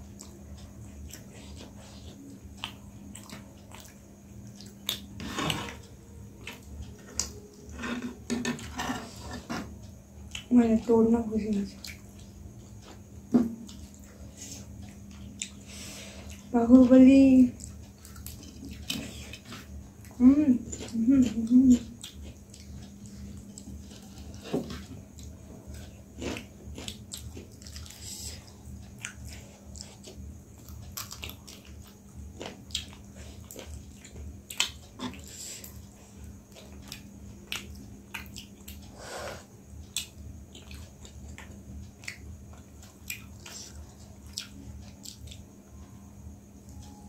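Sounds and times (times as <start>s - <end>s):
faint steady hum: 0.0s - 47.0s
people chewing chicken wings: 0.1s - 8.2s, 17.6s - 46.3s.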